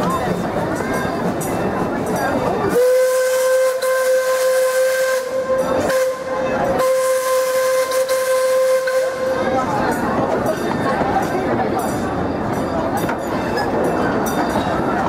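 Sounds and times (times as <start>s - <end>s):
steam locomotive whistle: 2.7s - 9.7s.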